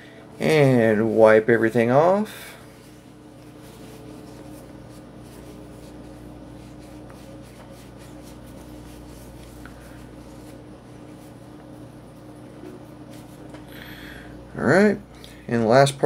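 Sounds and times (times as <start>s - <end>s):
low steady hum: 0.0s - 16.0s
cloth rag wiping plastic: 0.4s - 11.8s, 12.8s - 13.4s.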